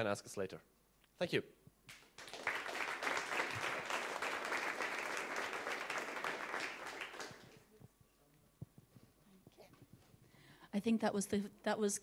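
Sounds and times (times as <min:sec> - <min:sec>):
audience applauding: 0:01.9 - 0:07.7.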